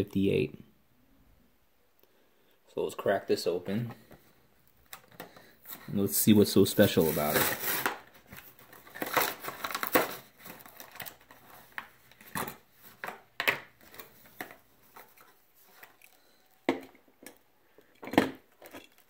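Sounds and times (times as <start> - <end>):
packaging crackling and tearing: 6.7 - 13.2.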